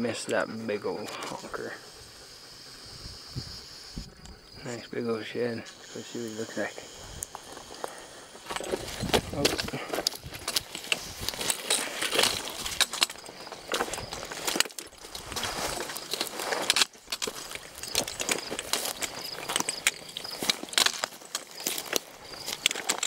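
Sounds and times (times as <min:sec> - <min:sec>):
footsteps on gravel and dry grass: 0:05.7 - 0:23.0.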